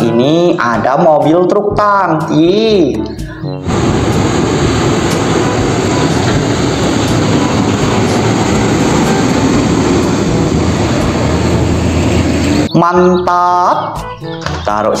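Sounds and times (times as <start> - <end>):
other traffic: 2.9 - 14.8
truck driving past: 3.6 - 12.7.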